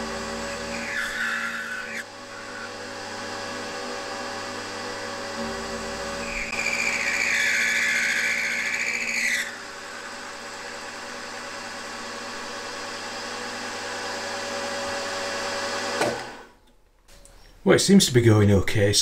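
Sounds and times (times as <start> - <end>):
milling spindle whine: 0.0 - 14.3
high-pitched cutting squeal: 0.5 - 2.9, 6.2 - 10.3.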